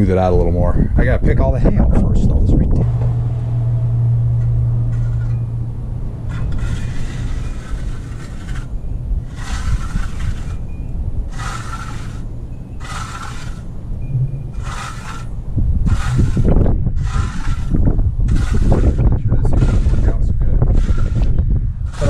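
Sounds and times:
wind rumble on microphone: 0.0 - 22.0
trowel scraping wet concrete: 6.3 - 8.7, 9.3 - 10.6, 11.4 - 12.2, 12.8 - 13.7, 14.6 - 15.3, 15.9 - 21.3.

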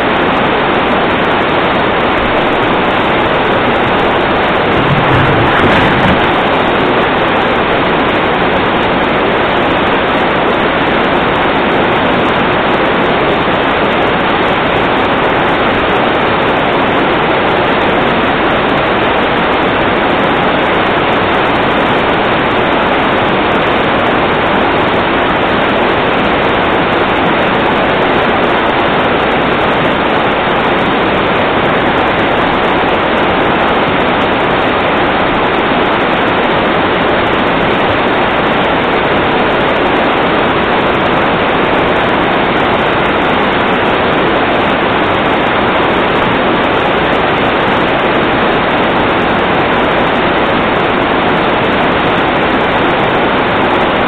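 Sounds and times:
floodwater rushing: 2.2 - 7.9.

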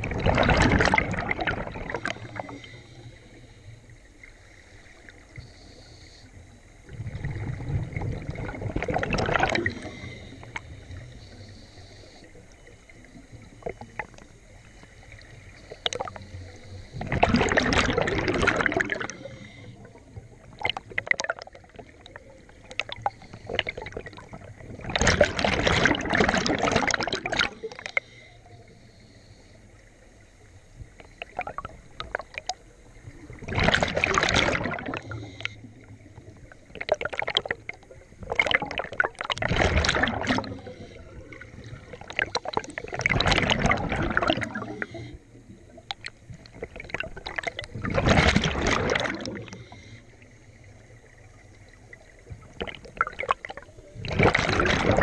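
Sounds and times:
diver's exhaled bubbles rushing: 0.0 - 2.7, 6.9 - 10.8, 16.9 - 27.9, 31.2 - 49.8, 52.0 - 55.0
faint hiss: 2.2 - 8.0, 9.6 - 17.1, 27.5 - 33.4.

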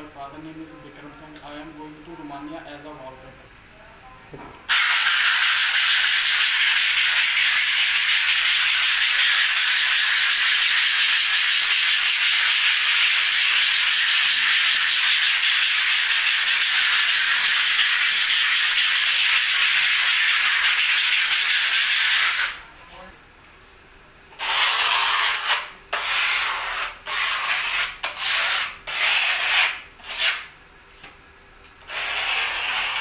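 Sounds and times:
hand sanding plastered wall: 4.7 - 22.6, 24.4 - 30.5, 31.9 - 33.0.

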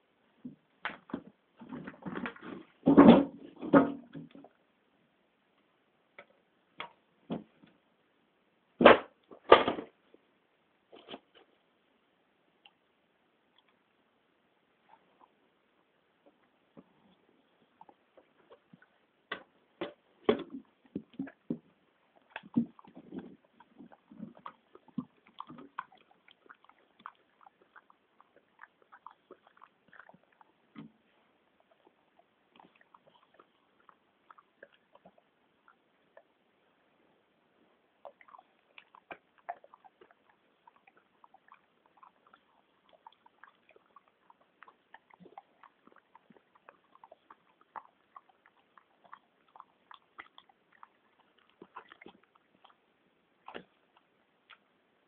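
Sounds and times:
dog chewing a stick: 20.3 - 36.4, 38.0 - 54.7.

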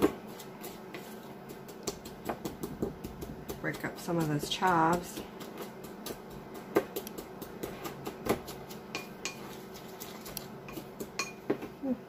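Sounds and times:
metal spoon clinking on glass bowl: 10.7 - 11.4.

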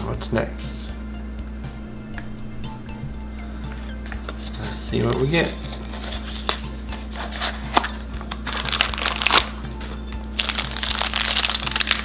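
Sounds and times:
background music: 0.0 - 12.0
plastic bag crinkling: 7.4 - 9.5, 10.4 - 12.0.

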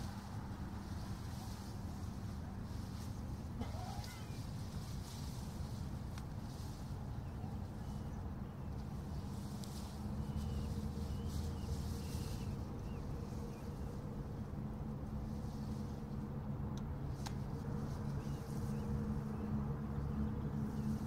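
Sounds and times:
faint hum: 0.0 - 21.0
faint short bird calls: 3.6 - 4.5.

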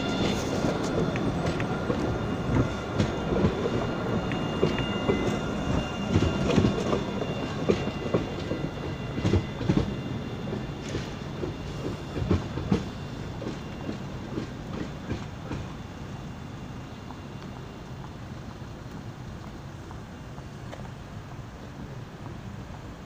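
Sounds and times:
tram wheels knocking on rail joints: 0.0 - 15.8
thin high whine: 0.0 - 18.0
tram rolling rumble: 0.0 - 23.0.

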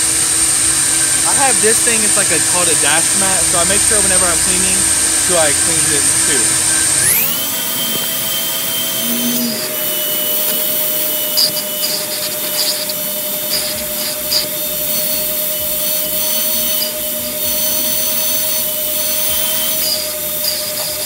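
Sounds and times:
nozzle scraping surfaces: 0.0 - 9.9
vacuum cleaner whining: 0.0 - 21.0.

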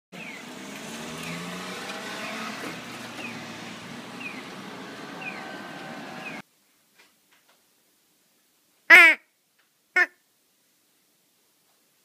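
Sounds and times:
cars passing: 0.2 - 6.4.

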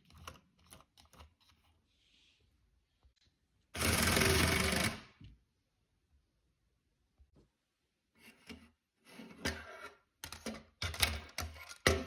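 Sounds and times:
plastic parts clattering: 10.2 - 12.0.

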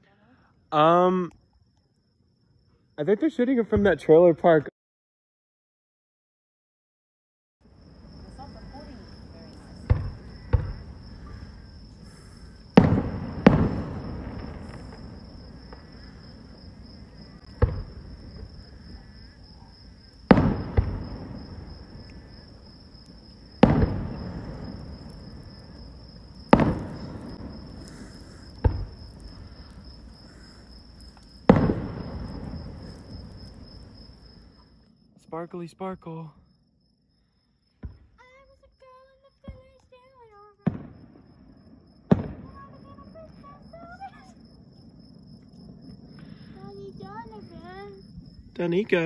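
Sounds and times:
high insect trill: 0.0 - 4.7, 7.6 - 49.0
distant fireworks bangs: 8.2 - 34.7, 39.4 - 49.0.

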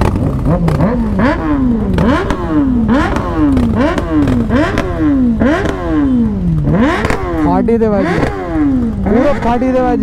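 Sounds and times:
motorcycle engine revving: 0.0 - 10.0.

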